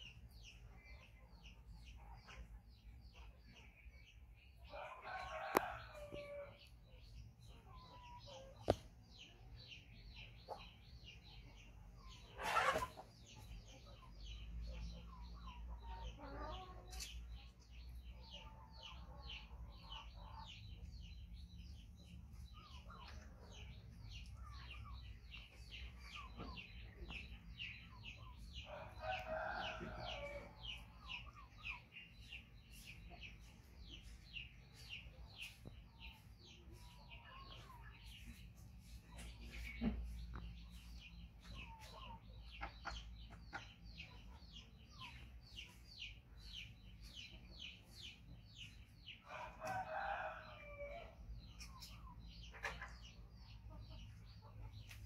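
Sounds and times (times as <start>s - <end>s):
birds chirping: 17.8s - 55.0s.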